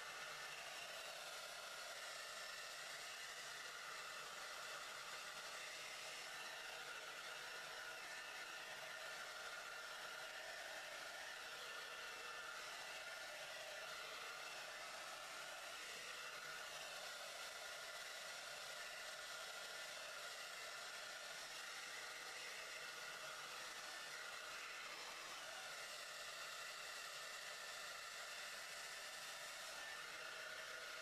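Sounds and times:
hair dryer running: 0.0 - 31.0.

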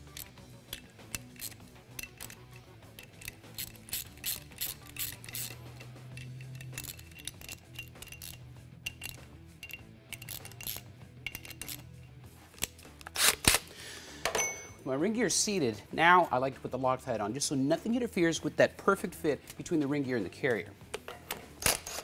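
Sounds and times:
ratchet clicking: 0.0 - 11.9
background music with bass: 0.0 - 21.7.

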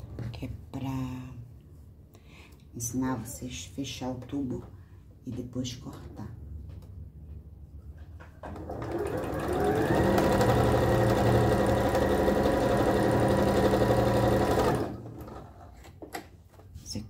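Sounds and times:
sewing machine stitching: 8.4 - 15.7.

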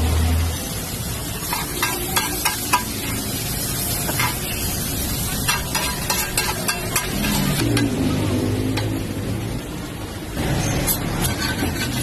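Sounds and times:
noodles sizzling on griddle: 0.0 - 12.0
metal spatula clacking and scraping: 1.4 - 3.2, 4.1 - 4.6, 5.4 - 8.0, 10.6 - 12.0.

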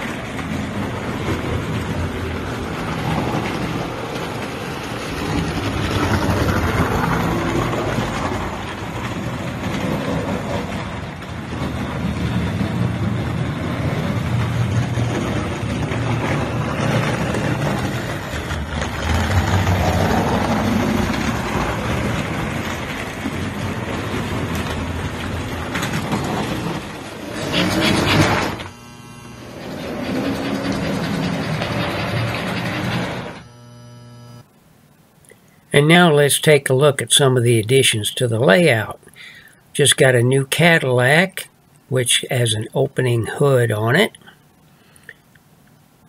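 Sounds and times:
model train whirring on track: 0.0 - 34.4
low hum: 4.8 - 35.2.

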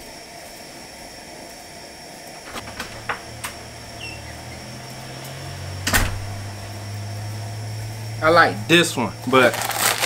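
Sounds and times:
gas burner hissing: 0.0 - 9.5
sharp knocks and clicks: 2.5 - 4.1
low hum: 2.5 - 9.6.

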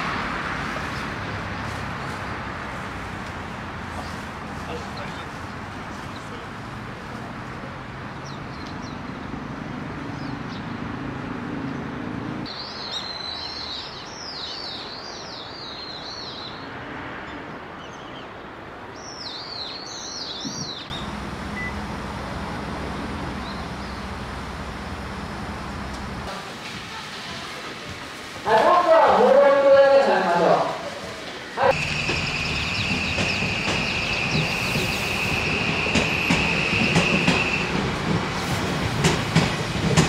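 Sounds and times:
bird singing high warble: 12.5 - 16.6, 31.8 - 35.9.

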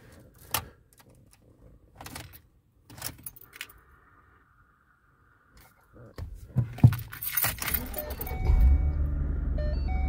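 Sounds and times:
car keys jangling in ignition: 6.9 - 8.8.

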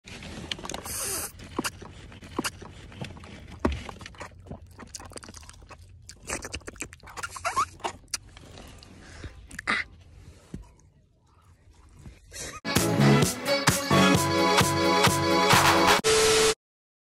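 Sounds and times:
wet mouth smacks and clicks: 4.8 - 8.2.

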